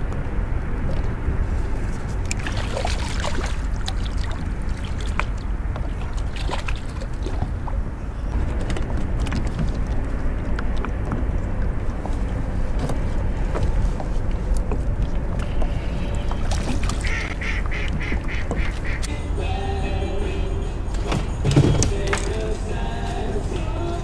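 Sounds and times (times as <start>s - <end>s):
wind on microphone: 0.0s - 19.1s
water lapping at boat hull: 0.0s - 19.2s
duck quacking: 15.7s - 19.2s.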